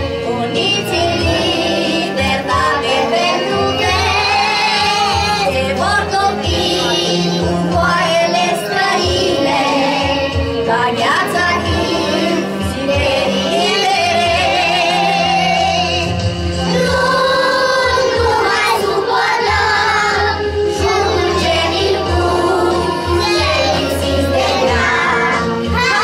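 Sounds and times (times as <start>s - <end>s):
children singing in chorus: 0.0s - 26.0s
music playing: 0.0s - 26.0s.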